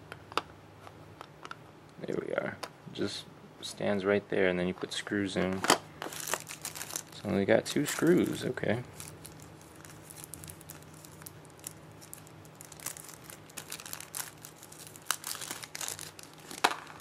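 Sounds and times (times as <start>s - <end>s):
plastic bag crinkling: 6.0s - 17.0s
sticky tape peeling: 7.8s - 17.0s.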